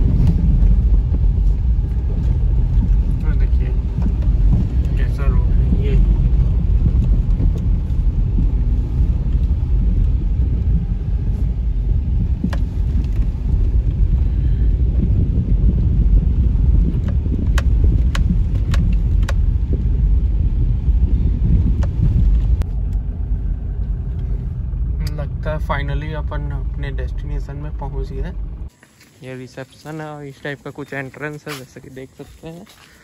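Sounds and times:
car knocks and rattles over bumps: 0.0 - 22.7
low rumble of tyres: 0.0 - 33.0.

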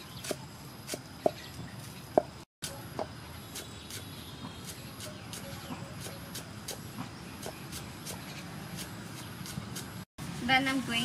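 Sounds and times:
cleaver chopping on wooden board: 2.2 - 9.9.

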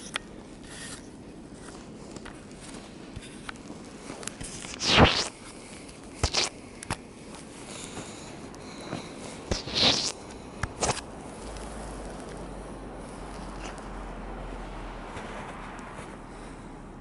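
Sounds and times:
footsteps crunching in snow: 7.2 - 16.6.

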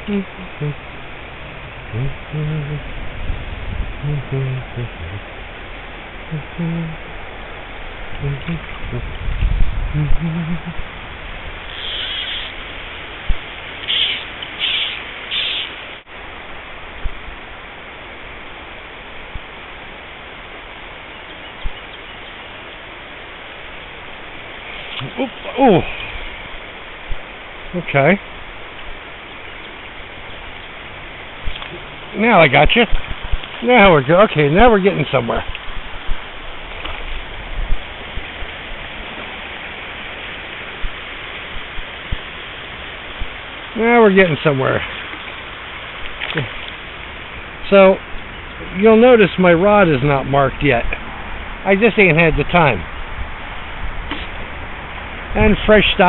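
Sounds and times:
bird calling: 0.0 - 3.0, 4.0 - 5.3, 6.3 - 7.0, 8.2 - 9.1, 9.9 - 10.9, 11.7 - 12.6, 13.8 - 15.8, 24.6 - 26.4
flowing river water: 0.0 - 56.0.

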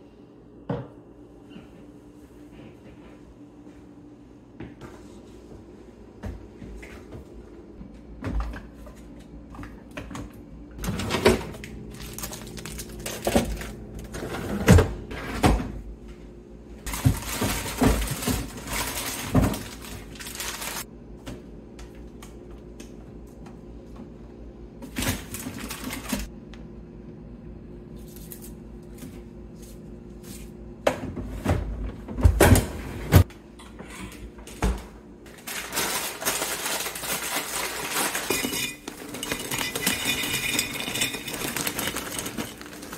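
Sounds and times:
plastic bags crinkling: 11.8 - 14.1, 16.9 - 20.9, 35.3 - 42.9.

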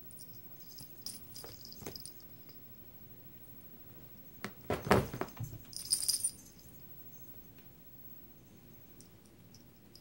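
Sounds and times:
cats scuffling on upholstery: 4.4 - 5.8.

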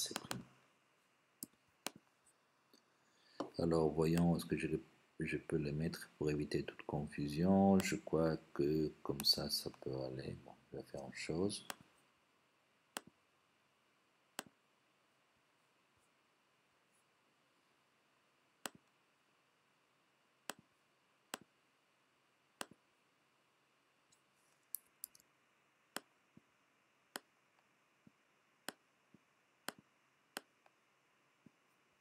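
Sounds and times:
faint room hiss: 0.0 - 32.0
computer mouse clicks: 0.1 - 0.5, 29.6 - 30.5.

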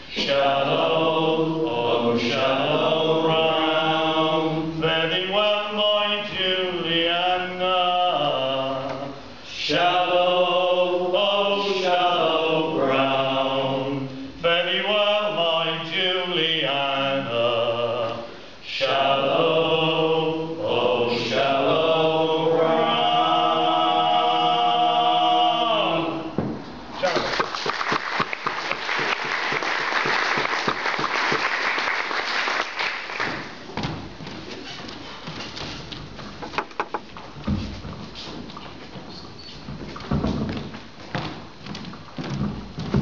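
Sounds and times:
men singing a sea shanty: 0.0 - 26.4.

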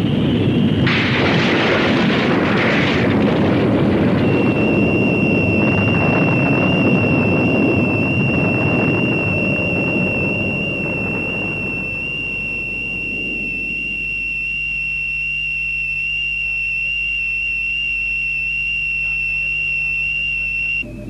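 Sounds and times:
cartoon volcano rumble: 0.0 - 14.0
steady high electronic tone: 3.8 - 21.0.

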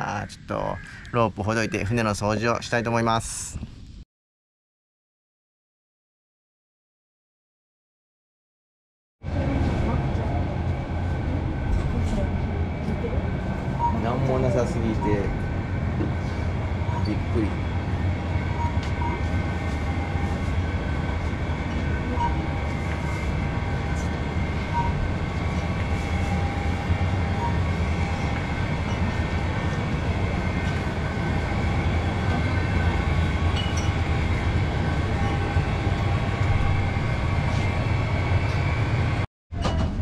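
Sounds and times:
refrigerators humming: 9.3 - 40.0.

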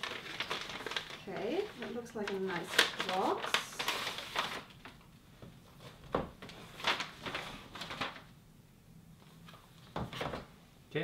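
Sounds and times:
paper mailing bag rustling: 0.0 - 5.1, 5.8 - 8.3.

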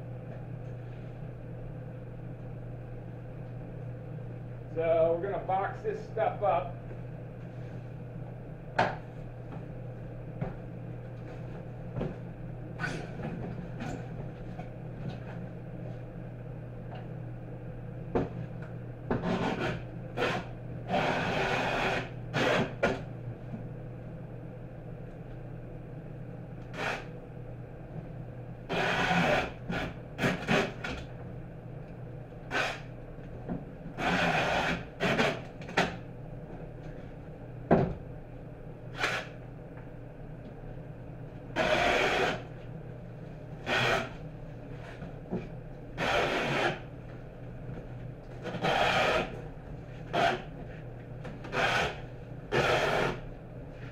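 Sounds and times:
low steady hum: 0.0 - 53.9
packing tape screeching off roll: 32.5 - 32.9.

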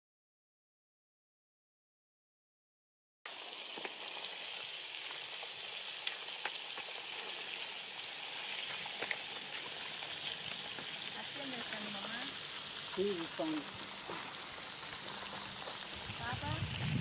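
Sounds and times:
fish sizzling in oil: 3.3 - 17.0
oil popping: 3.6 - 17.0.

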